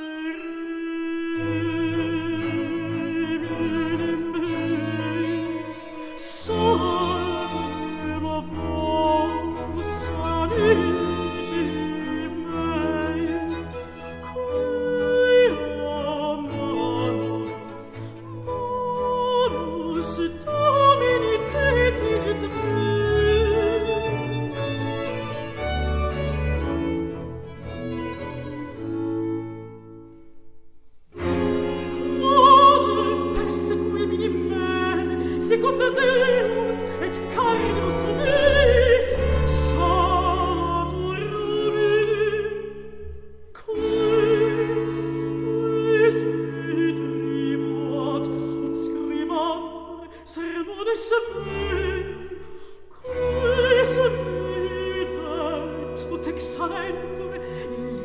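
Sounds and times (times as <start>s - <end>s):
contralto singing with vibrato: 0.0s - 26.7s, 31.2s - 42.9s, 43.6s - 52.4s
string ensemble: 0.0s - 58.0s.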